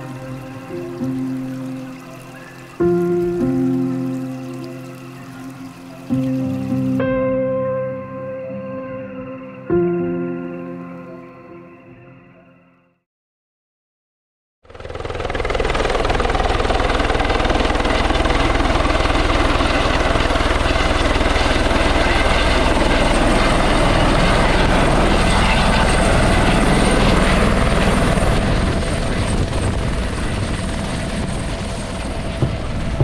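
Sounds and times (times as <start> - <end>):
helicopter rotor and turbine: 14.7 - 33.0.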